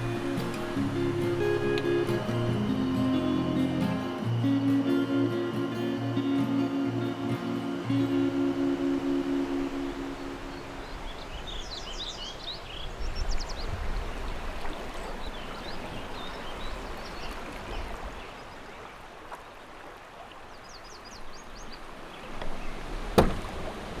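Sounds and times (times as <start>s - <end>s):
birds chirping: 0.0s - 19.8s, 20.4s - 23.0s
river flowing: 0.0s - 24.0s.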